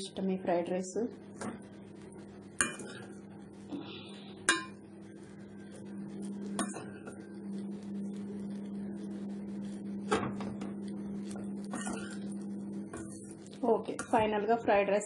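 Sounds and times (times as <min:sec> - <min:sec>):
steady low hum: 0:00.0 - 0:15.0
spatula scraping a pan: 0:11.4 - 0:12.4.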